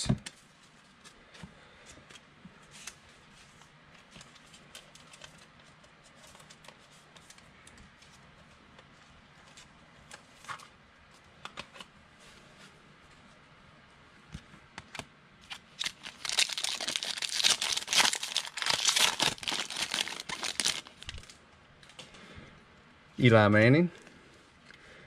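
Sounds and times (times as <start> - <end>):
trading cards rustling: 15.5 - 21.4.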